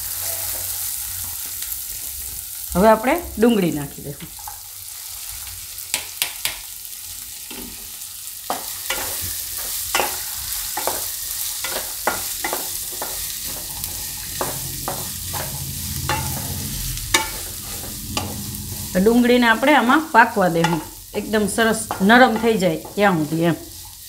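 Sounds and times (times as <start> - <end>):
onions sizzling in oil: 0.0 - 24.0
spatula scraping and tapping pan: 5.9 - 6.7, 8.5 - 18.9, 19.5 - 24.0.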